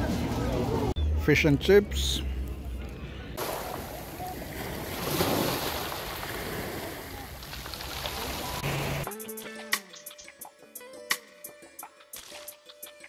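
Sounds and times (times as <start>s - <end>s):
waves washing over pebbles: 3.4s - 9.0s
music: 8.6s - 13.0s.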